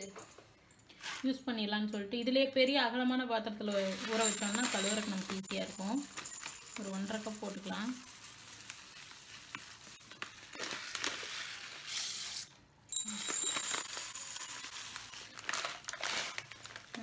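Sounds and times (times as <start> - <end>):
rice grains pouring into metal cup: 3.9 - 10.3
plastic packet rustling: 9.9 - 11.9, 14.4 - 17.0.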